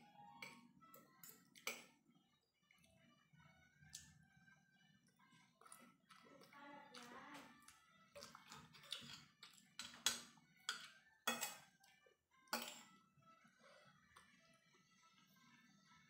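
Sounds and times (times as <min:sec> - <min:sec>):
fork and spoon scraping a plate: 0:08.2 - 0:11.7.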